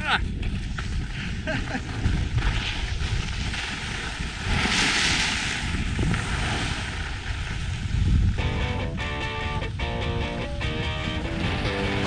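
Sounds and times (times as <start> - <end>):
wind on microphone: 0.0 - 12.0
skis scraping over snow: 0.5 - 8.4.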